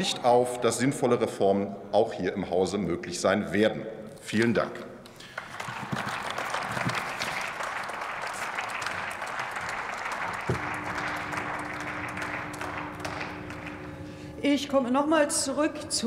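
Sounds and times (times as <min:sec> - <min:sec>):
crowd clapping: 0:05.1 - 0:14.4
steady low tone: 0:10.4 - 0:16.0.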